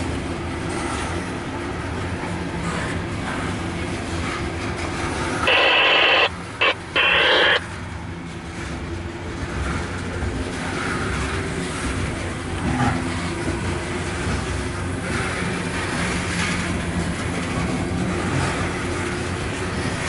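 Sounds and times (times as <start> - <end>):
train wheels rumbling on rails: 8.0 - 20.0.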